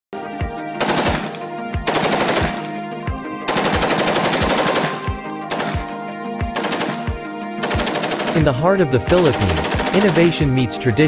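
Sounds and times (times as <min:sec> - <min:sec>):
rifle automatic fire: 0:00.8 - 0:02.8, 0:03.5 - 0:06.0, 0:06.6 - 0:10.5
background music with drum beat: 0:04.5 - 0:10.8.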